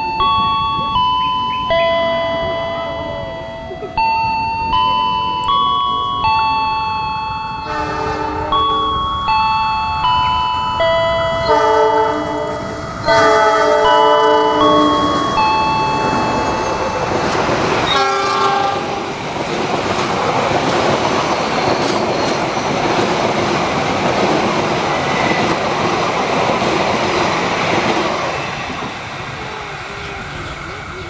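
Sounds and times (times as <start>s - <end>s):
train wheels rumbling on rails: 0.0s - 31.0s
train horn blast: 7.6s - 8.6s, 11.4s - 15.2s, 17.8s - 19.1s.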